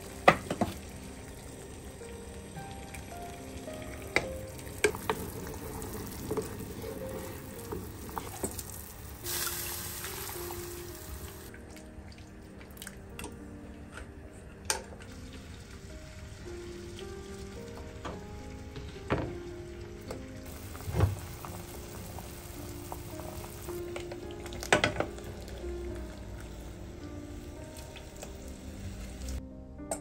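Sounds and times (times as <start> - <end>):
water boiling in a pot: 0.0 - 13.0, 20.4 - 29.4
soft background music: 0.0 - 30.0.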